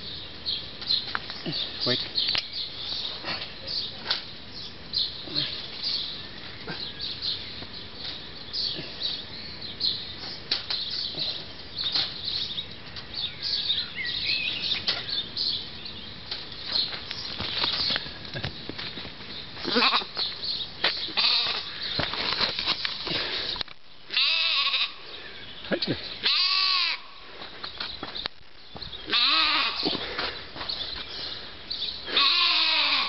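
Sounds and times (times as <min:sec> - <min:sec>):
sheep bleating: 0:19.6 - 0:20.2, 0:21.2 - 0:21.7, 0:24.1 - 0:25.0, 0:26.2 - 0:27.1, 0:29.1 - 0:29.9, 0:32.1 - 0:33.0.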